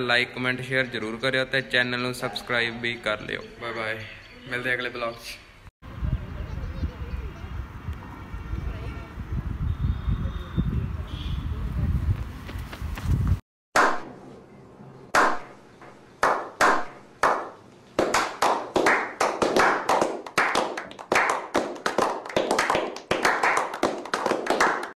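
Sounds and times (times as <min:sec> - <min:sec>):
people clapping: 0:16.2 - 0:25.0.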